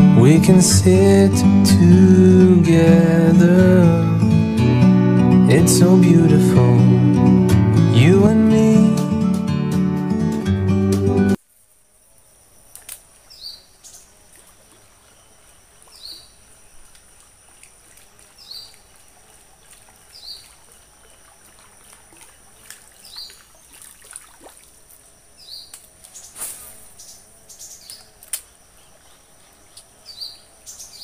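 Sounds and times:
insect drone: 11.3 - 31.0.

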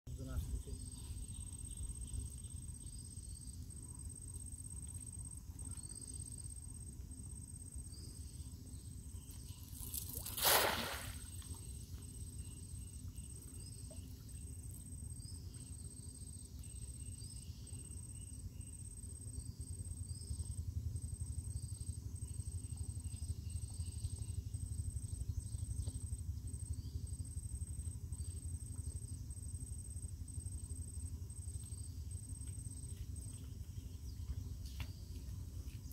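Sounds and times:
high insect trill: 0.1 - 35.9
fishing net splashing into water: 9.8 - 11.6.

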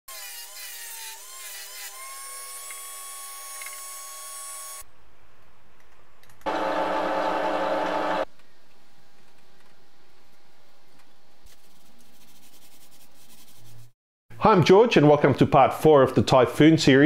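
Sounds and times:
power tool whining: 6.5 - 8.3.

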